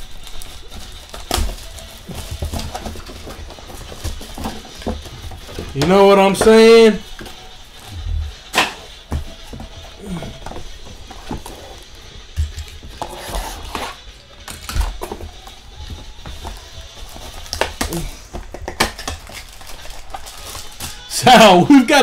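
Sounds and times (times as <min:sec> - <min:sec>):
cards and packaging rustling: 0:00.0 - 0:22.0
quiet background music: 0:00.0 - 0:22.0.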